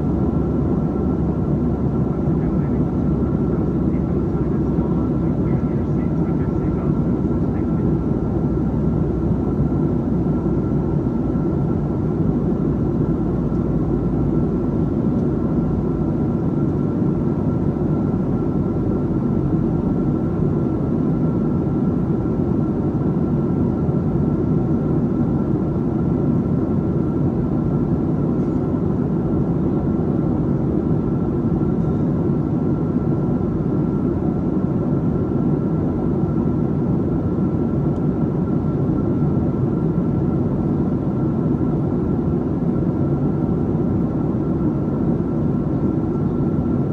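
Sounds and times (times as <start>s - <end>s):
airplane cabin airflow and engines: 0.0s - 46.9s.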